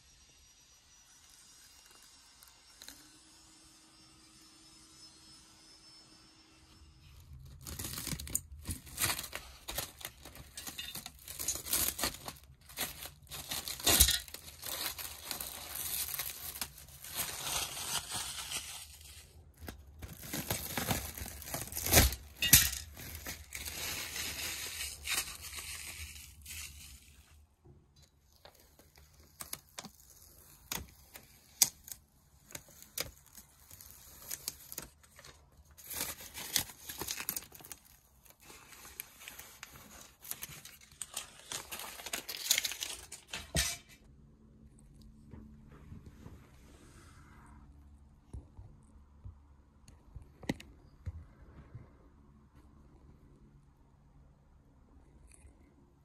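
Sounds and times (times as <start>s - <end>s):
plastic film crinkling and tearing: 0.9s - 3.5s, 7.0s - 44.0s.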